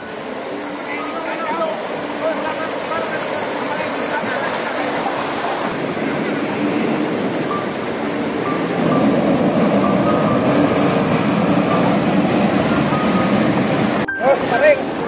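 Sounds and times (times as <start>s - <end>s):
water rushing and splashing: 0.0s - 15.0s.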